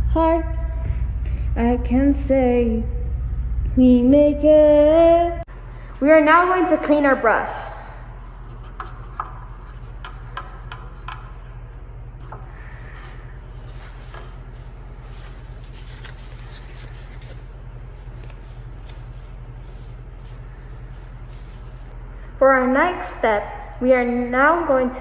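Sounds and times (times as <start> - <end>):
low hum: 0.0 - 25.0
brush rubbing on paper towel: 12.8 - 21.9.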